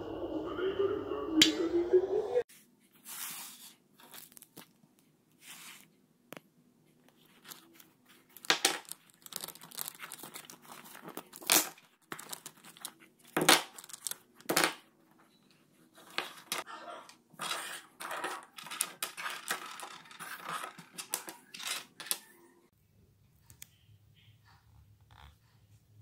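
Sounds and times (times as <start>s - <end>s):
stationery rustling and crinkling: 2.5s - 22.4s.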